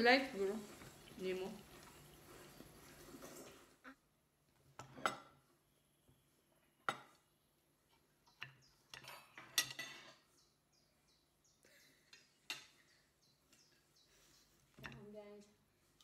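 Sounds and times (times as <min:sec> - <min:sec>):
metal utensils clinking on glass dish: 0:08.9 - 0:10.3.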